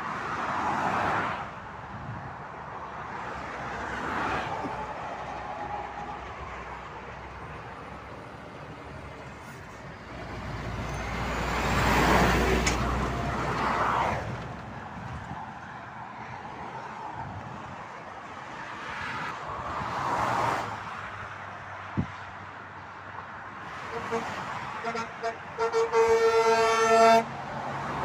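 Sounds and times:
steady traffic noise: 0.0 - 28.0
truck driving past: 4.4 - 15.3.

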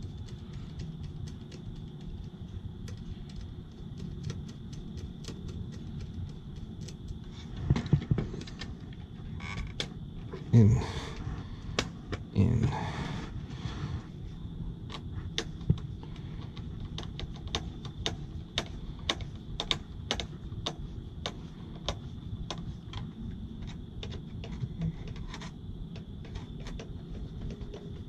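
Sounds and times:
sharp irregular clicks: 0.0 - 9.0, 14.8 - 28.0
steady low rumble: 0.0 - 26.3.

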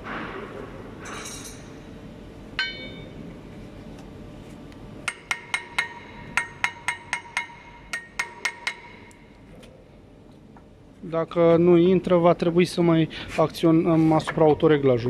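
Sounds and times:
sharp metal knocks: 2.6 - 3.2, 5.1 - 9.1.

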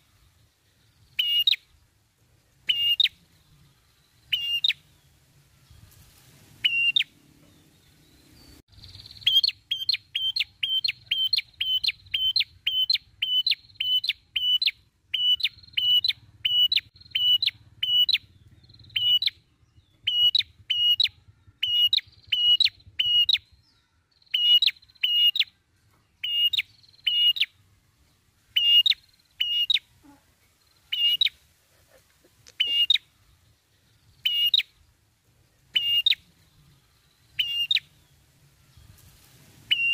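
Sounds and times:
bird calling high sharp notes: 6.6 - 7.1, 35.8 - 36.2, 37.4 - 37.9.

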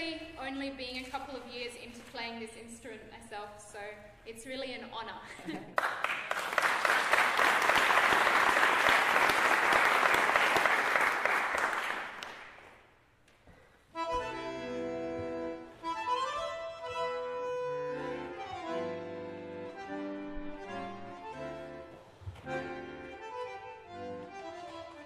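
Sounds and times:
audience applause: 5.8 - 12.6
accordion playing chords: 13.8 - 25.0.

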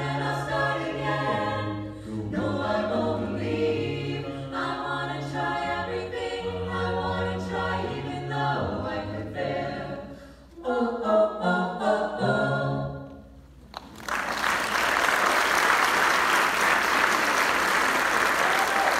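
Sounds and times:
a cappella ensemble singing: 0.0 - 13.6
audience applause: 13.8 - 18.9.

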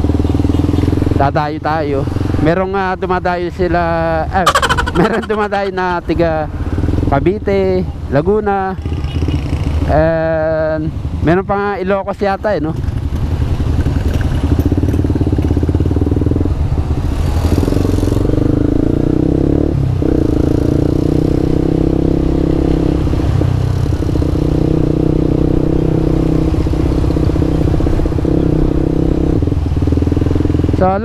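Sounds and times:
motorcycle engine running: 0.0 - 7.8, 12.6 - 19.4, 23.7 - 31.0.

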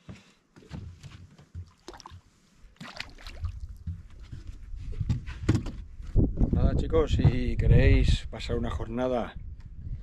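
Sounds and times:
water splashing and trickling: 1.4 - 5.0.

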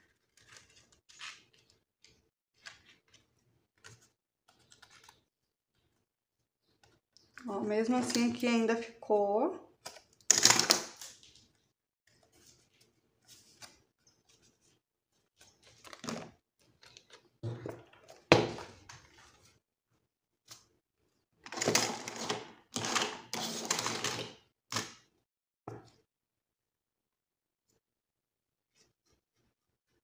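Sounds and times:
paper rustling and scraping: 0.0 - 5.3, 12.1 - 18.2.

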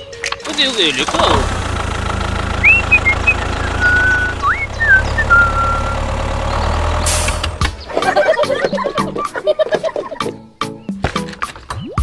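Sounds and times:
tractor engine running: 0.3 - 9.0
high whistling chirps: 2.5 - 7.5.

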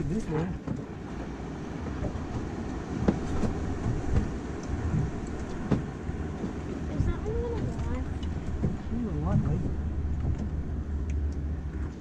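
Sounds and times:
wind and water rumble: 0.0 - 12.0.

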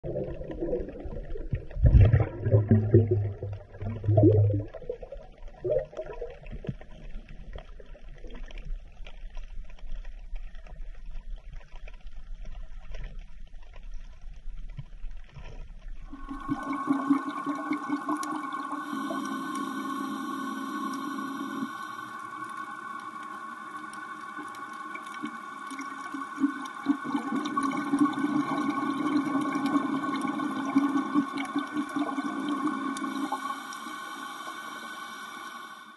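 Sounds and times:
underwater gurgling bubbles: 0.0 - 35.9
drone of held tones: 16.1 - 26.4.

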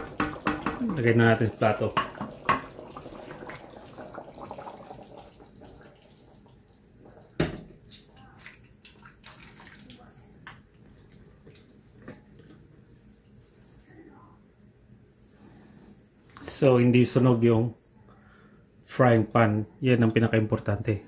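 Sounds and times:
thick stew sloshing and plopping: 1.7 - 12.9.

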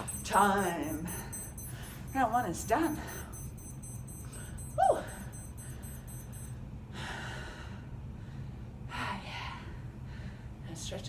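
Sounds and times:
electronic timer beeping: 0.0 - 6.6.

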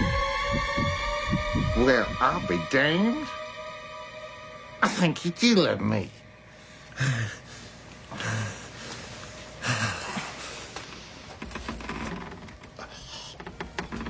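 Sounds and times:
person gasping heavily: 6.9 - 9.0.

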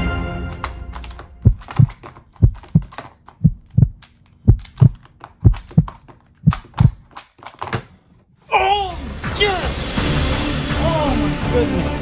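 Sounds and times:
plastic puzzle cube clicks: 0.6 - 7.8
heartbeat double thump: 1.4 - 7.0.

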